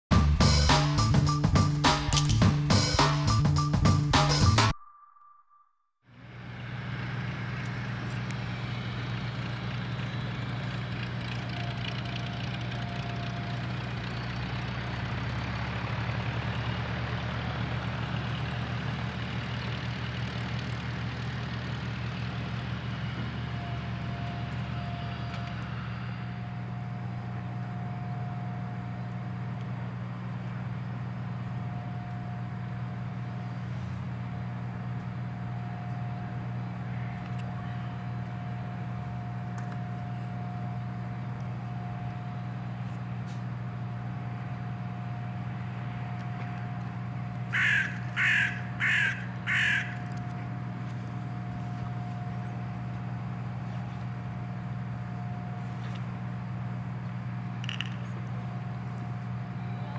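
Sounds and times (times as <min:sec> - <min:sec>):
propeller plane engine running: 0:00.1 - 0:04.7, 0:06.1 - 0:59.9.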